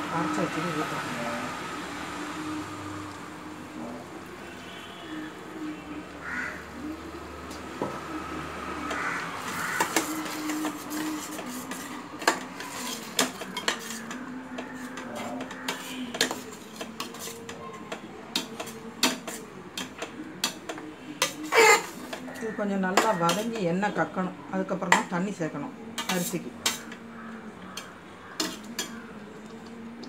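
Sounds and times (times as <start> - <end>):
spatula scraping metal pan: 8.9 - 17.6, 18.3 - 23.7, 26.0 - 27.0, 27.8 - 29.0.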